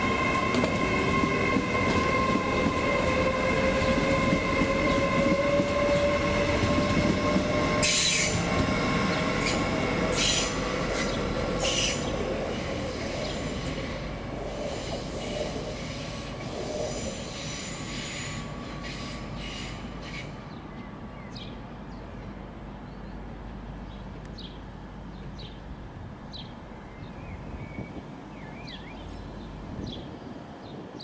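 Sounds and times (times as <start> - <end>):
train wheel squeal: 0.0 - 20.5
train rumbling on rails: 0.0 - 31.0
bird chirping: 26.3 - 31.0.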